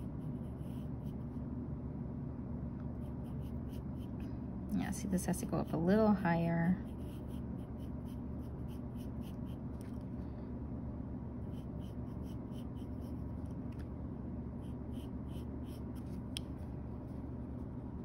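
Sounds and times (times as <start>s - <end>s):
pencil scratching on paper: 0.0s - 1.4s, 3.0s - 4.3s, 6.8s - 9.6s, 11.4s - 13.3s, 14.6s - 16.2s
steady low hum: 0.0s - 18.0s.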